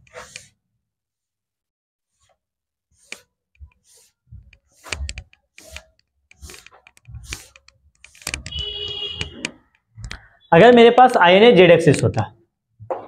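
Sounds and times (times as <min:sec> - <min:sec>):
blackboard being wiped: 0:00.0 - 0:00.6, 0:02.1 - 0:09.3.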